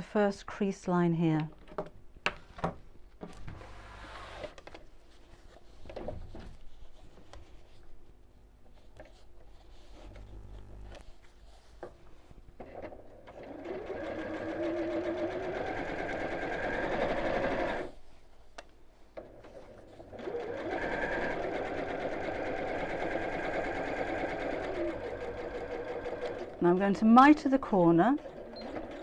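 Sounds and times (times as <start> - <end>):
sewing machine stitching: 12.7 - 17.9, 19.2 - 29.0.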